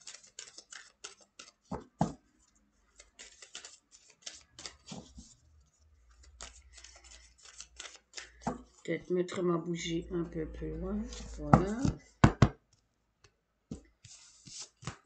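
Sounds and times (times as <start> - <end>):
cards being shuffled: 0.0 - 2.2, 3.0 - 5.4, 6.1 - 8.8, 11.1 - 12.0, 13.7 - 15.0.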